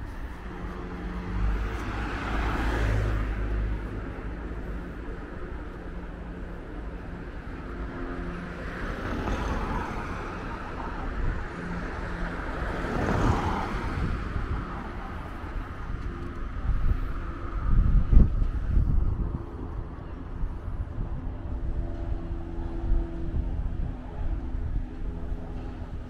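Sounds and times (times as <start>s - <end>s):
car passing: 0.0s - 19.3s
road traffic passing: 0.0s - 26.0s
wind rumble on microphone: 0.0s - 26.0s.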